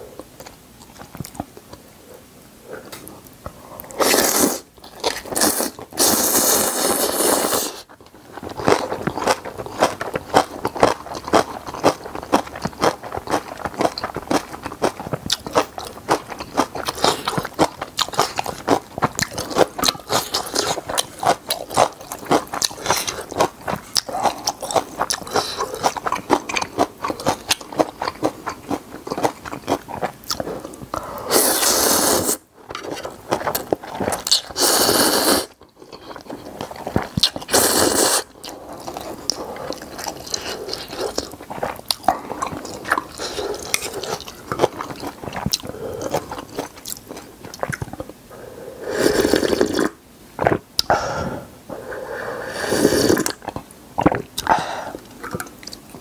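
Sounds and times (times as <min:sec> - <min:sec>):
noodle slurp: 0:04.0 - 0:07.9, 0:31.2 - 0:32.4, 0:34.4 - 0:35.6, 0:37.0 - 0:38.3, 0:48.9 - 0:50.6, 0:52.5 - 0:54.5
wet chewing and crunching: 0:07.8 - 0:31.0, 0:32.3 - 0:34.8, 0:35.5 - 0:48.2.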